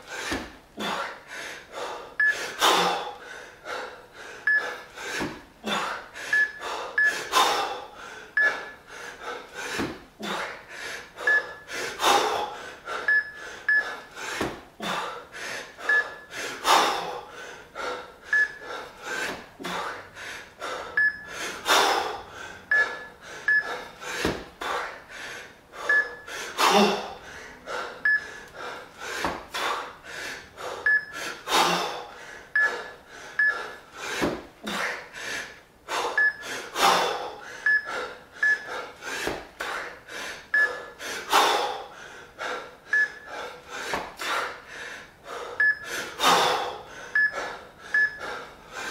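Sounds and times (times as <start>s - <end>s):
man breathing hard and gasping: 0.0s - 48.9s.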